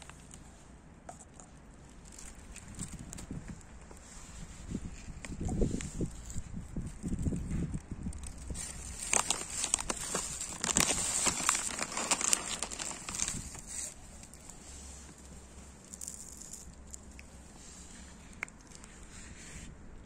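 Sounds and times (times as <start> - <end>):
plastic bag crinkling: 1.9 - 4.0, 6.0 - 19.1.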